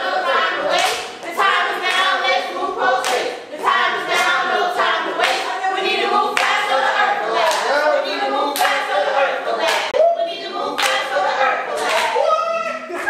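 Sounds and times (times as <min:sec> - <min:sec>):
children singing in unison: 0:00.0 - 0:12.2
hands clapping on the beat: 0:00.7 - 0:02.3, 0:03.0 - 0:03.4, 0:04.1 - 0:04.5, 0:05.1 - 0:05.5, 0:06.3 - 0:07.8, 0:08.5 - 0:10.0, 0:10.8 - 0:12.2.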